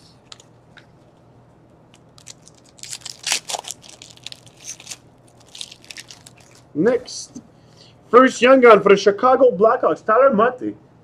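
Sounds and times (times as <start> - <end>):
plastic wrapper crinkling: 1.9 - 6.7.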